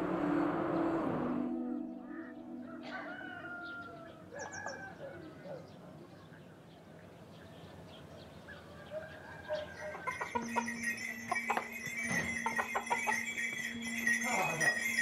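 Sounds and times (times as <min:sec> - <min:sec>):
sustained tone: 0:00.0 - 0:04.2
background music: 0:00.0 - 0:04.8, 0:09.6 - 0:15.0
bird calls: 0:01.6 - 0:14.2
metallic clinking: 0:10.0 - 0:15.0.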